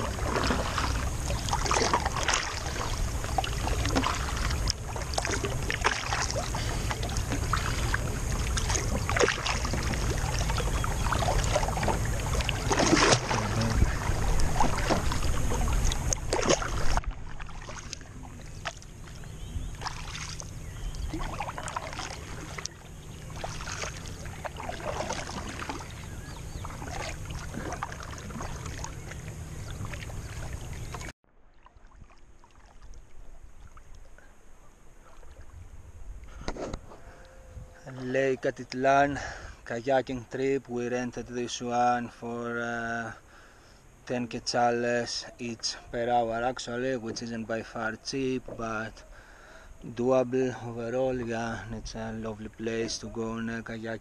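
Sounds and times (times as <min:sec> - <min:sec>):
steady low rumble: 0:00.0 - 0:31.1
paddles splashing in water: 0:00.0 - 0:37.5, 0:45.1 - 0:54.0.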